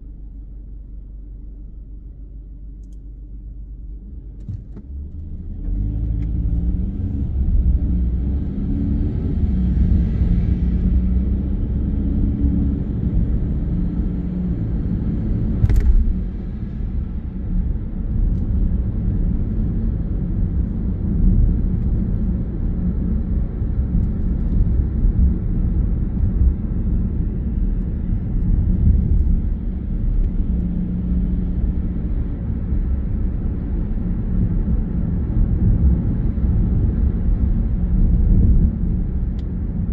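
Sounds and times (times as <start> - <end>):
tyre and road drone: 3.8 - 39.9
car engine accelerating: 4.4 - 22.3.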